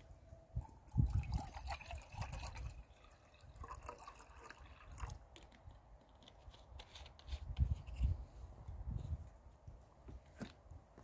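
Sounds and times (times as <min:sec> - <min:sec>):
liquid trickling and dripping: 0:00.6 - 0:05.2.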